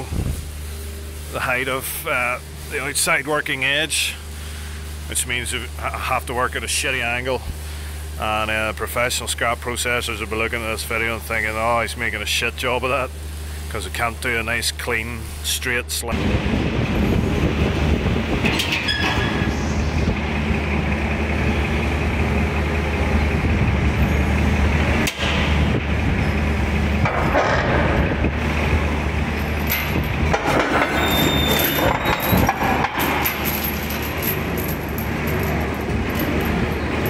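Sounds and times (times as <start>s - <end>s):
low machine drone: 0.0s - 37.0s
clicks and rattles: 29.4s - 37.0s.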